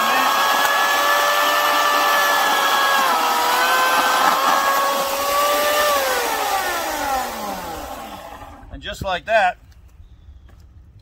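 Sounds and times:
electric chainsaw cutting log: 0.0s - 8.7s.

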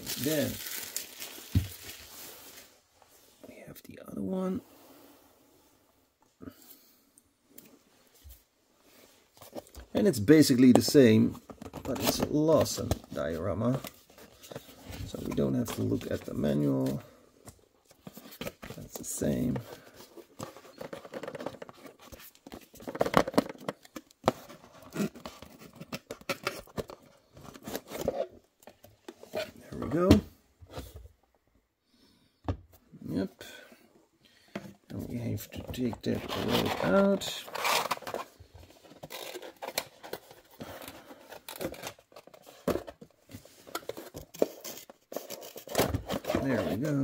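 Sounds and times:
cardboard rustling and scraping: 34.9s - 47.0s.

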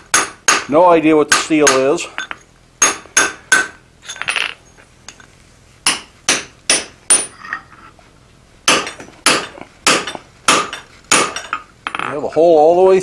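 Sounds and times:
hammer striking hot metal punch: 0.1s - 3.8s, 5.8s - 7.3s, 8.7s - 12.1s.

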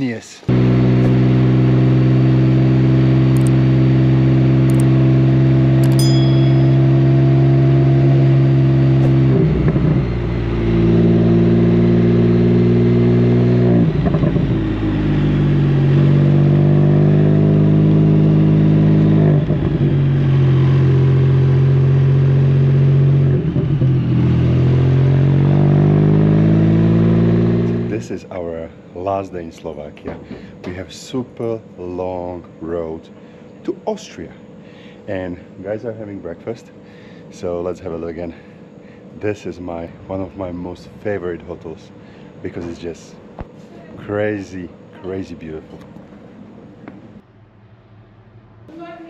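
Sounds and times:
motorcycle engine running: 0.5s - 28.3s
sharp high clicks: 3.3s - 3.6s, 4.7s - 4.9s, 5.8s - 6.1s.

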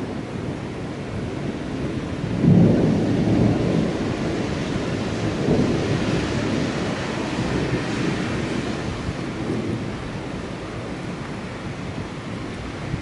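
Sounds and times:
rolling thunder: 0.0s - 13.0s.

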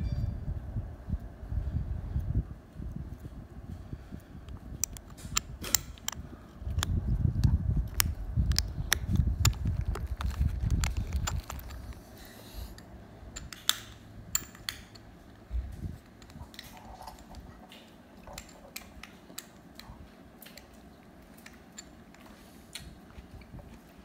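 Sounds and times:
small hard objects clicking: 4.8s - 12.0s.

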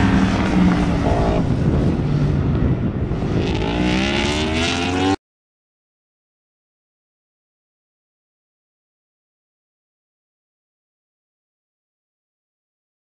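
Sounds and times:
motorcycle engine accelerating: 0.0s - 5.2s.

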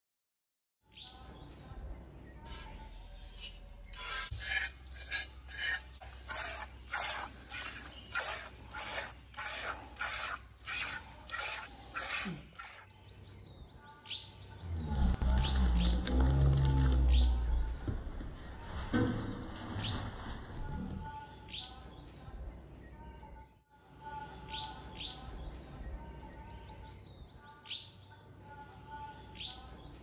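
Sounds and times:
birds chirping: 3.9s - 22.2s
milk squirting into a pail: 4.4s - 12.9s.

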